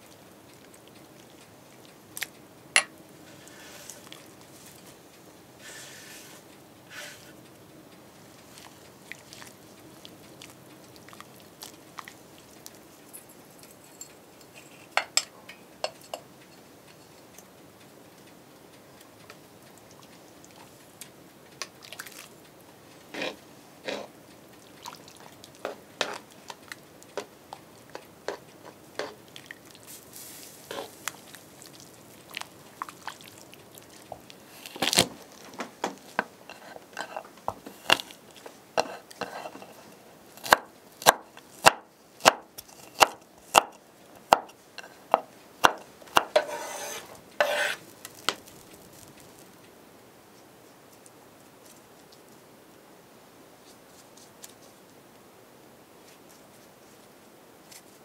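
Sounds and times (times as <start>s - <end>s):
knife chopping on wooden board: 40.4s - 44.5s, 45.1s - 47.8s.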